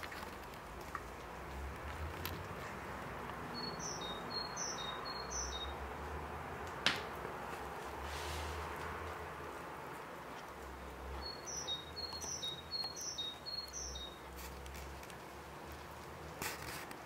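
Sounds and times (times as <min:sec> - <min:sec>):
songbird chirping: 0:03.3 - 0:06.0, 0:10.7 - 0:14.4.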